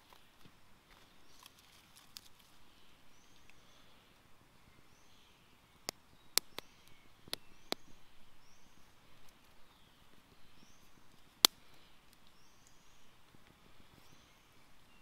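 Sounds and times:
sticks snapping: 1.3 - 2.5, 5.8 - 7.9, 11.4 - 12.8.

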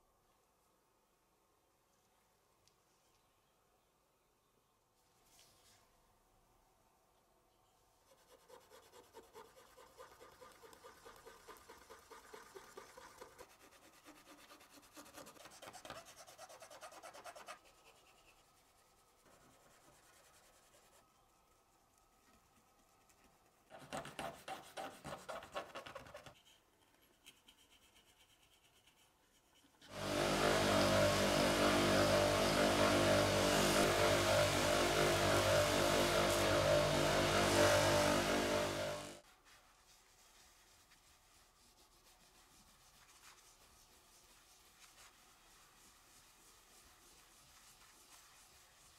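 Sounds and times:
cotton swab rubbing metal: 8.0 - 31.8
electric buffing wheel running: 29.9 - 39.2.

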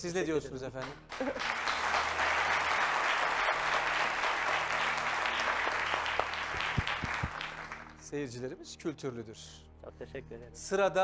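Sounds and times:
audience applauding: 0.8 - 8.1.

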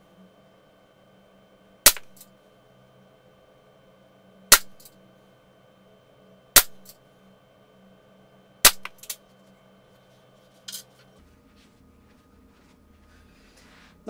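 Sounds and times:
air pistol shots: 1.9 - 2.2, 4.5 - 4.8, 6.6 - 6.9, 8.6 - 9.1.

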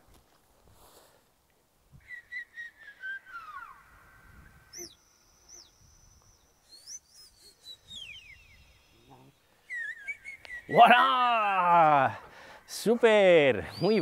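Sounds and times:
recorded swooping whistles: 2.0 - 11.8, 13.6 - 14.0.

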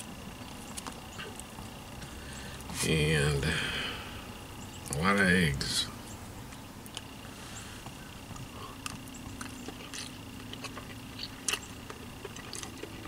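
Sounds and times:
chewing: 0.0 - 2.7, 6.5 - 13.0
faint steady hum: 0.0 - 13.0.

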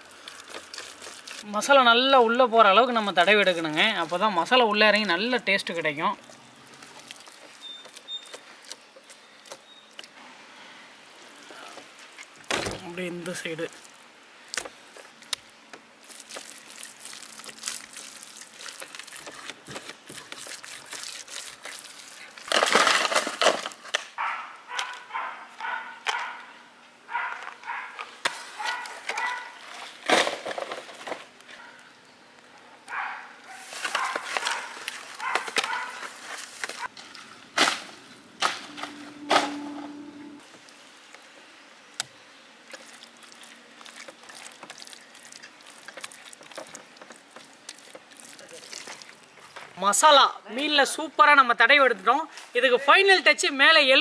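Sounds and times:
dry husks and leaves crackling: 0.0 - 51.1.

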